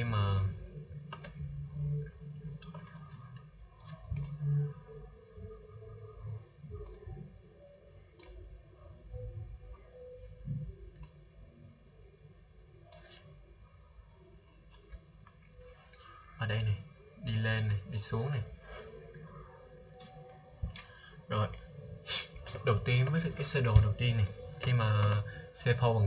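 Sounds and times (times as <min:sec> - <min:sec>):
faint room noise: 0:00.0 - 0:26.0
computer mouse clicking: 0:03.8 - 0:04.6, 0:06.8 - 0:07.2, 0:08.2 - 0:08.4, 0:12.9 - 0:13.3.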